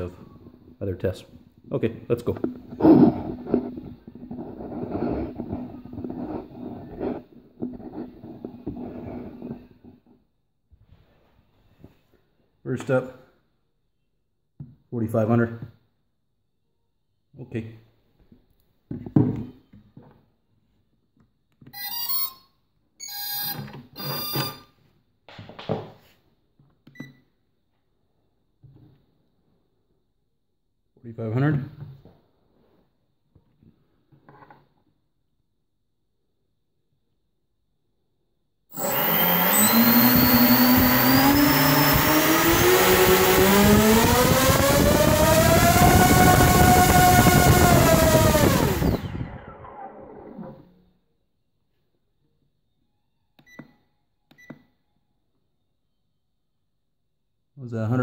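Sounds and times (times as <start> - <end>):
motor startup beeps: 21.8 - 22.4, 23.0 - 24.7, 38.7 - 49.7.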